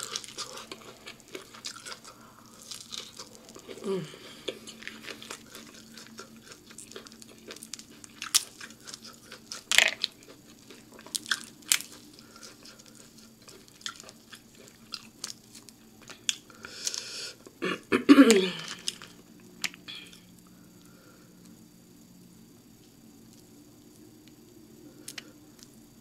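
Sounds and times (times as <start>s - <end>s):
chewing and mouth smacks: 0.0s - 3.8s, 4.4s - 16.5s
seafood shells cracking: 0.0s - 3.8s, 4.4s - 17.1s, 18.6s - 19.8s.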